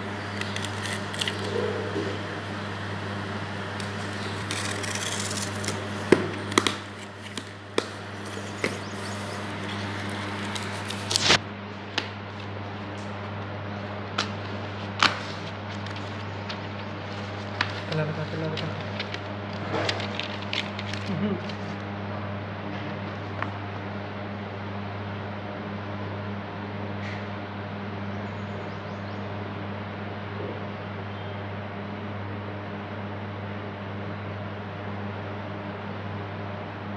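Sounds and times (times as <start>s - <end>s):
tape peeling off: 0.0s - 2.2s, 3.6s - 11.4s
sharp cracks and snaps: 0.2s - 1.6s, 9.9s - 12.1s
cardboard and paper rustling: 0.2s - 2.2s, 3.8s - 11.4s, 14.3s - 21.8s.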